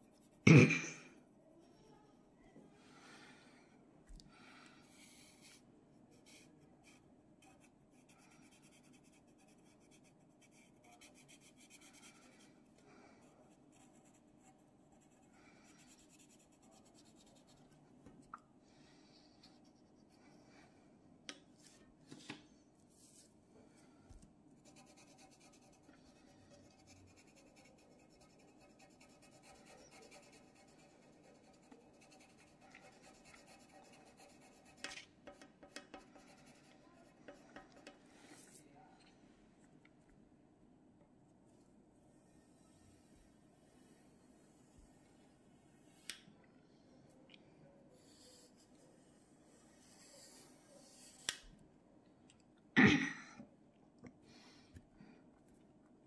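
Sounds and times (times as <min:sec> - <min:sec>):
pencil scratching on paper: 0:05.0 - 0:12.5, 0:13.5 - 0:17.8, 0:24.6 - 0:38.6, 0:48.0 - 0:51.4.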